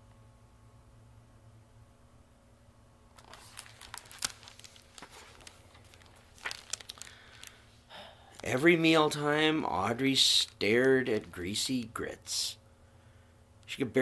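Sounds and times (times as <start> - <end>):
paper book rustling: 3.2 - 7.6.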